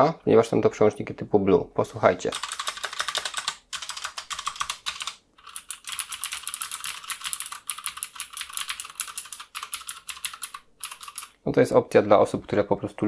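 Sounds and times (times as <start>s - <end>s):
clicky mechanical keyboard typing: 2.3s - 11.4s.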